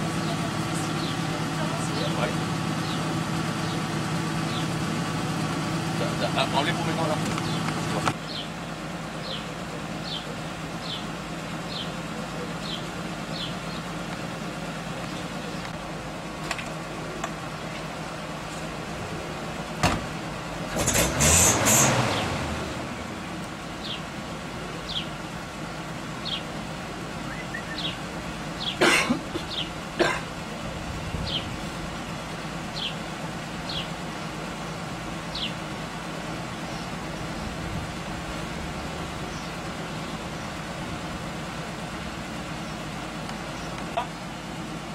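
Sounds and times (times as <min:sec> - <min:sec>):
car engine idling: 0:00.0 - 0:44.9
bird chirping: 0:00.2 - 0:01.3, 0:07.4 - 0:08.6, 0:09.2 - 0:11.1, 0:12.6 - 0:13.9, 0:24.9 - 0:25.1, 0:26.2 - 0:26.5, 0:27.2 - 0:28.0, 0:32.8 - 0:33.0, 0:33.7 - 0:34.0, 0:35.3 - 0:35.6, 0:39.3 - 0:40.6
small bird chirping: 0:27.3 - 0:28.0.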